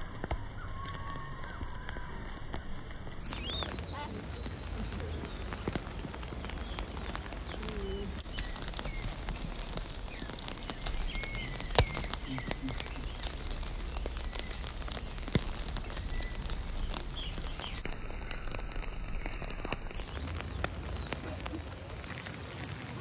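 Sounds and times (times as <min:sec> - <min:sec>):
rain falling and dripping: 0:00.0 - 0:23.0
high bird chirps: 0:03.3 - 0:09.2, 0:10.0 - 0:17.8, 0:20.0 - 0:23.0.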